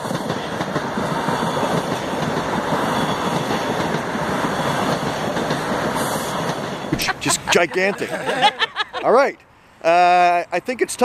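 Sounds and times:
subway train rushing past: 0:00.0 - 0:08.4.

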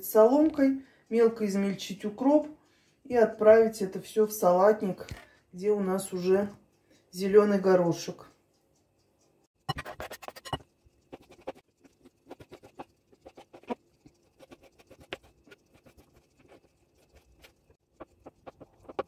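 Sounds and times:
food scraped into glass bowl: 0:09.7 - 0:15.0.

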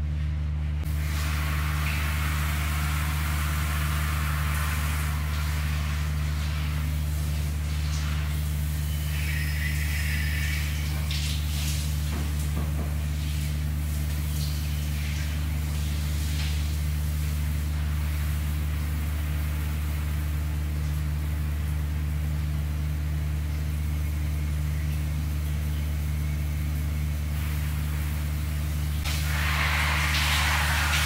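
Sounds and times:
low mechanical hum: 0:00.0 - 0:31.0
shower spraying onto tiles: 0:00.9 - 0:20.0, 0:29.0 - 0:31.0.

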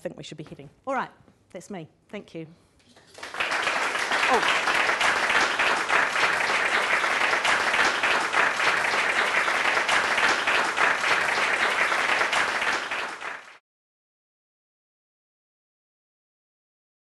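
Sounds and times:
audience applauding: 0:03.0 - 0:13.6.

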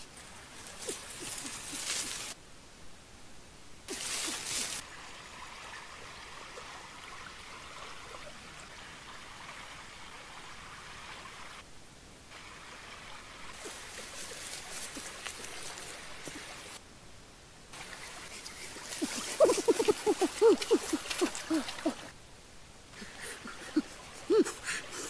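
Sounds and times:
brush crackling: 0:00.0 - 0:02.4, 0:03.9 - 0:04.8, 0:13.5 - 0:16.8, 0:17.8 - 0:22.2
stream trickling over rocks: 0:00.0 - 0:02.4, 0:03.9 - 0:11.6, 0:12.3 - 0:16.8, 0:17.7 - 0:22.2
rustling leaves and branches: 0:00.0 - 0:25.0.

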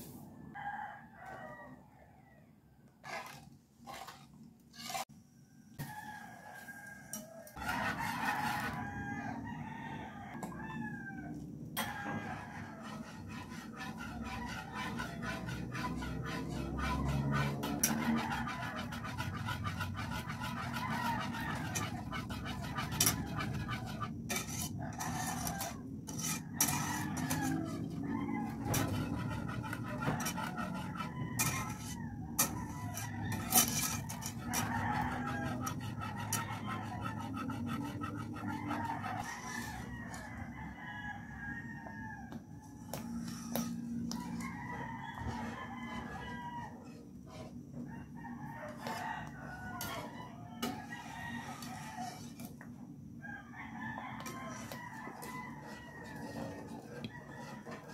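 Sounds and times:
whisk scraping a pot: 0:03.0 - 0:05.1, 0:07.6 - 0:09.1, 0:11.8 - 0:41.3, 0:42.3 - 0:52.8, 0:53.8 - 0:57.9.

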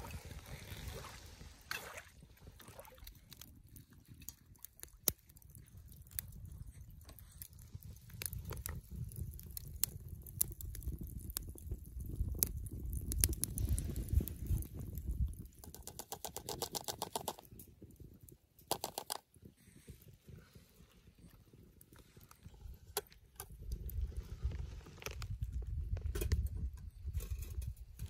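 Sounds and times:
fire crackling and popping: 0:00.0 - 0:28.0
wood fire rumbling: 0:03.2 - 0:28.0.

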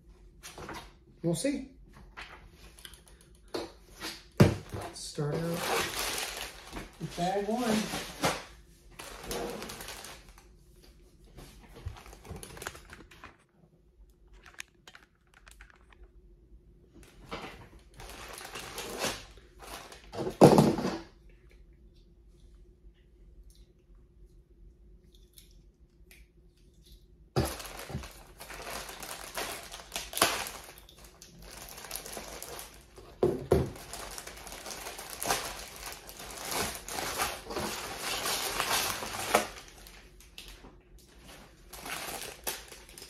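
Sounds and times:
plastic bag crinkling: 0:04.6 - 0:10.5, 0:11.8 - 0:16.2, 0:17.8 - 0:20.4, 0:27.4 - 0:43.0.

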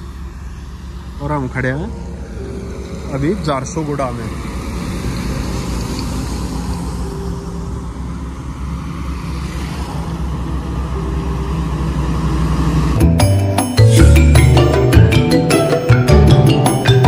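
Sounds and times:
highway traffic rumble: 0:00.0 - 0:17.0
music: 0:12.9 - 0:17.0.

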